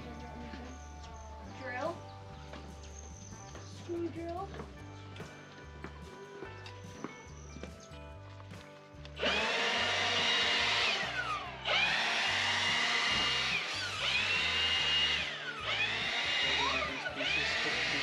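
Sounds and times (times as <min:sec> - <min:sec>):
background music with beat: 0:00.0 - 0:09.2
power tool motor whine: 0:09.2 - 0:18.0.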